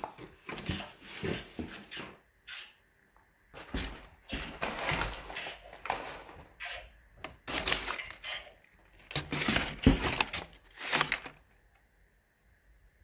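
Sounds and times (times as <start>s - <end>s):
packing paper crinkling: 7.3s - 11.6s.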